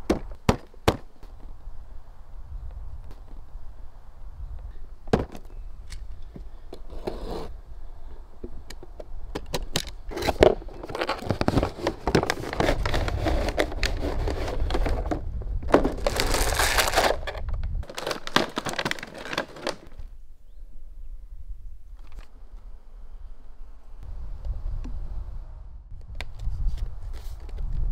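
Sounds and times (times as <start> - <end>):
cardboard and plastic rustling: 10.1 - 20.1.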